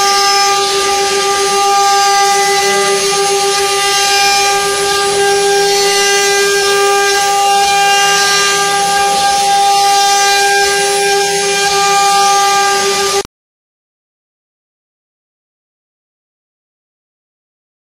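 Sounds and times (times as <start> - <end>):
router bits cutting wood: 0.0 - 13.3
router spindles whining: 0.0 - 13.3.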